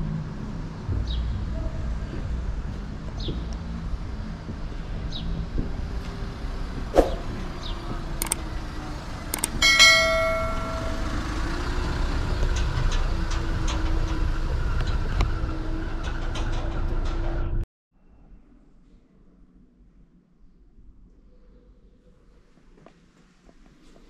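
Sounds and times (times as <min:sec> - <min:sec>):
city street traffic noise: 0:00.0 - 0:17.6
bell strike ringing: 0:09.5 - 0:11.5.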